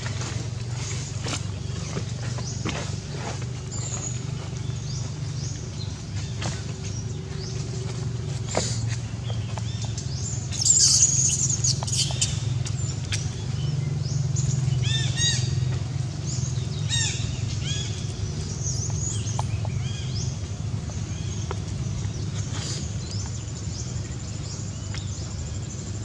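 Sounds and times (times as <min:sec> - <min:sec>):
birds chirping: 0:00.0 - 0:26.0
steady low hum: 0:00.0 - 0:26.0
loud hissing rustle: 0:22.3 - 0:23.2.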